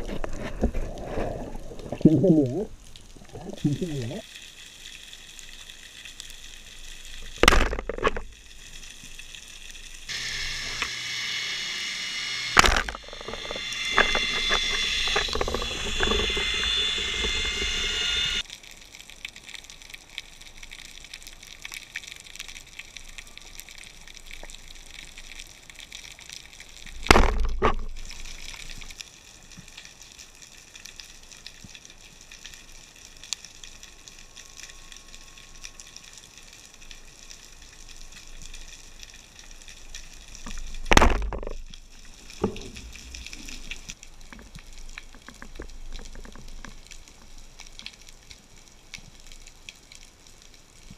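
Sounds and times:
high whine: 0:10.1 - 0:18.4
sharp thumps: 0:12.5 - 0:18.4, 0:27.1 - 0:27.9.

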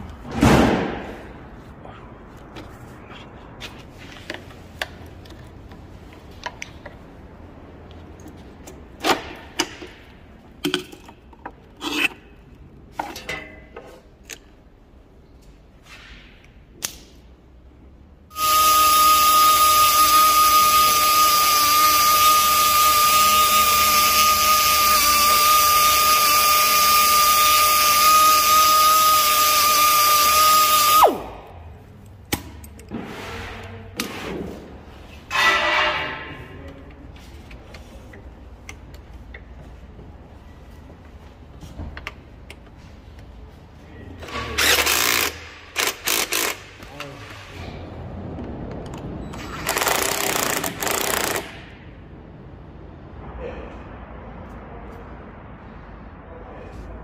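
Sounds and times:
power tool whining: 0:18.3 - 0:31.2.

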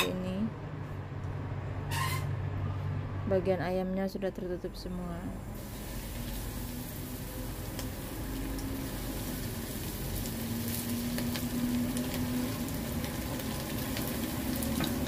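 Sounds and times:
chicken sizzling in hot oil: 0:05.6 - 0:15.0
oil popping: 0:05.6 - 0:15.0.

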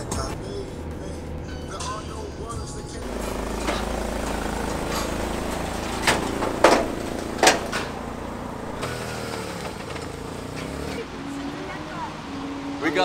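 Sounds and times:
car engine humming: 0:00.0 - 0:13.0
sharp knocks: 0:03.0 - 0:10.1.

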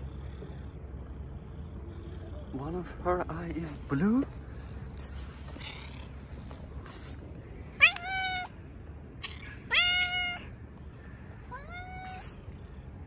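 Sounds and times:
cat meowing: 0:07.8 - 0:08.6, 0:09.2 - 0:10.6, 0:11.5 - 0:12.6.

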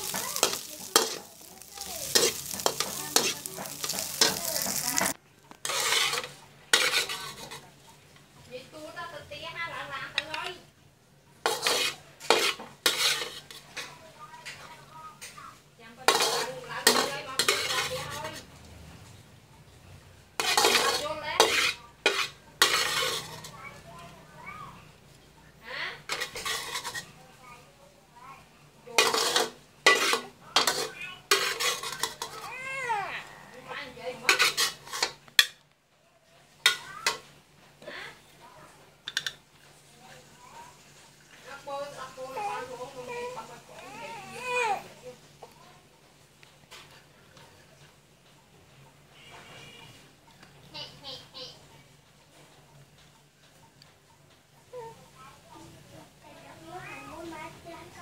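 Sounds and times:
metal spatula scraping wok: 0:00.0 - 0:07.8, 0:11.4 - 0:18.6, 0:20.2 - 0:23.9, 0:25.9 - 0:27.2, 0:28.9 - 0:33.0, 0:33.6 - 0:35.6, 0:36.6 - 0:37.3
food sizzling: 0:00.0 - 0:35.7, 0:36.3 - 0:50.2.

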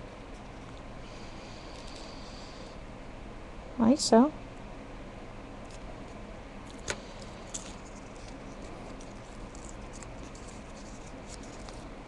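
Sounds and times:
paper rustling and crinkling: 0:06.7 - 0:12.0.

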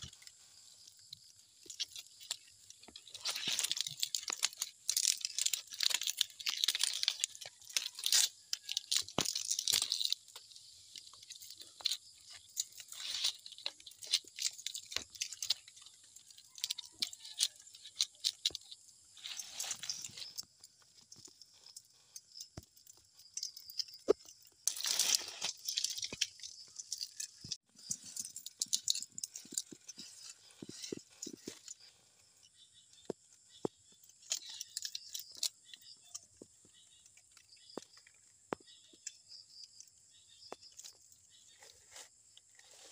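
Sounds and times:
leaves rustling and crackling: 0:00.0 - 0:21.7, 0:23.3 - 0:32.3, 0:40.6 - 0:42.9.

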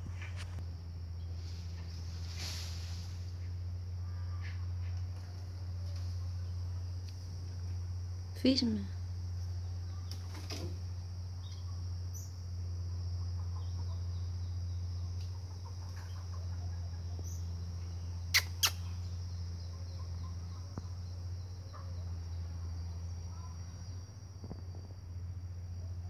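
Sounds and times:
faint chirps: 0:00.2 - 0:26.0
marmoset sharp high calls: 0:18.2 - 0:19.1.

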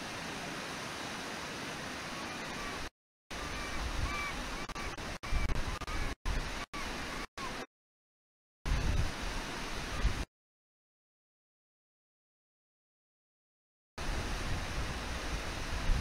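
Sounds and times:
fast river rushing: 0:00.0 - 0:07.7, 0:08.7 - 0:10.3, 0:14.0 - 0:16.0
gull calling: 0:03.4 - 0:06.2.

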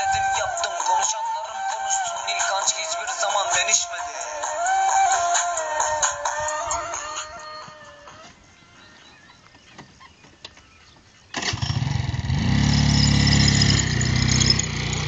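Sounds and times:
scooter engine starting and revving: 0:11.3 - 0:15.0.

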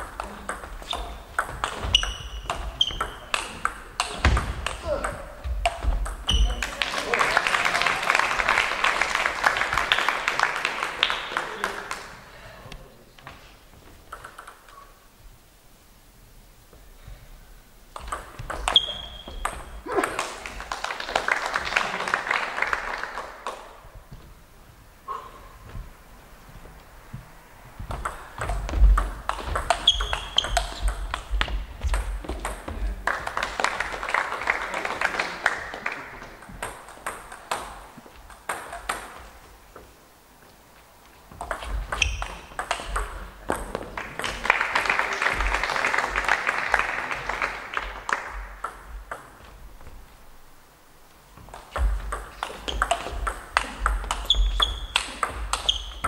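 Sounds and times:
table tennis ball clicking: 0:14.0 - 0:14.7, 0:27.9 - 0:32.6
crowd noise: 0:24.8 - 0:38.2.

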